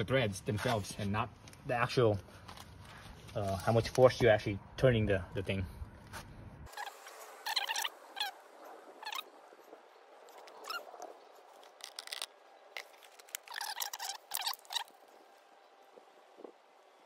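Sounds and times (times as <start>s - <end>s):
animal whimpering squeakily: 6.7s - 8.4s, 9.0s - 9.2s, 10.6s - 11.0s, 13.5s - 14.9s.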